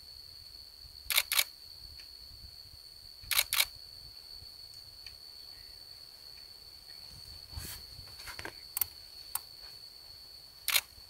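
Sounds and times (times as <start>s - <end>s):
cricket trilling: 0.0s - 11.0s
camera shutter double click: 1.1s - 1.5s, 3.3s - 3.7s, 10.7s - 10.9s.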